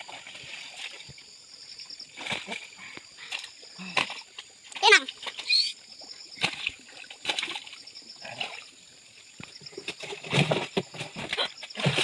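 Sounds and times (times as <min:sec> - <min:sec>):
water splashing and sloshing: 0:00.0 - 0:12.0.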